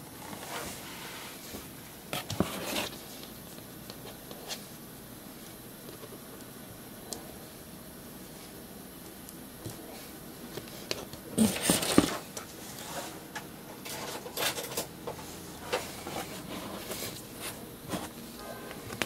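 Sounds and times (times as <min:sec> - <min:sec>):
cardboard and paper rustling: 0:00.2 - 0:03.4, 0:10.6 - 0:13.2.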